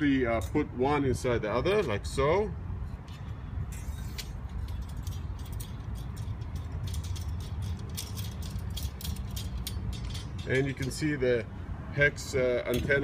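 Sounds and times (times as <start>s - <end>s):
steady low rumble: 0.0s - 13.0s
metal antenna clicking and rattling: 2.9s - 11.4s.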